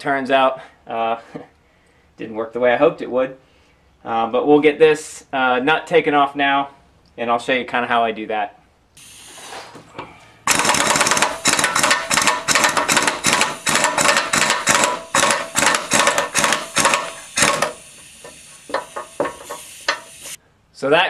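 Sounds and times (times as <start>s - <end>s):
impact wrench rattling: 10.5s - 20.4s
sharp metallic clicks: 10.5s - 20.4s.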